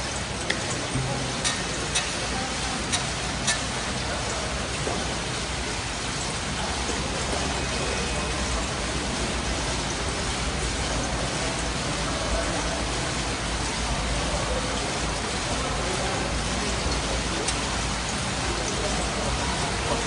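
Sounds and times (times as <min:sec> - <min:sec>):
busy gym noise: 0:00.0 - 0:05.9.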